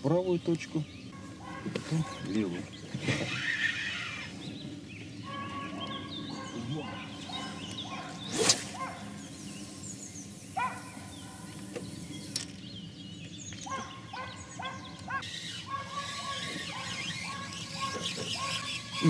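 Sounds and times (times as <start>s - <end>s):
birds chirping: 0.0s - 19.0s
fishing line hissing off reel: 8.2s - 12.5s
fishing rod swish: 8.3s - 8.8s.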